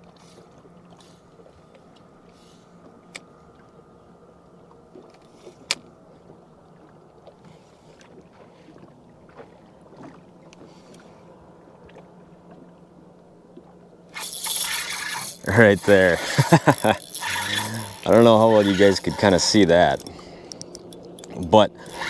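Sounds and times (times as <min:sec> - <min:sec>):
faint steady hum: 0:00.0 - 0:22.0
light clicks: 0:20.0 - 0:22.0.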